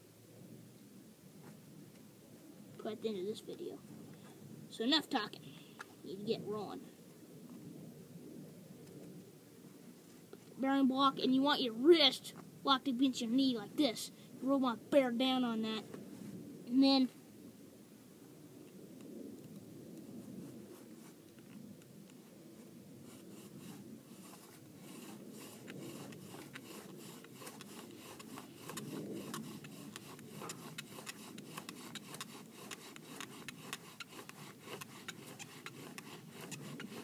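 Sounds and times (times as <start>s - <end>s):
wooden spindle rubbing on board: 23.0s - 37.0s.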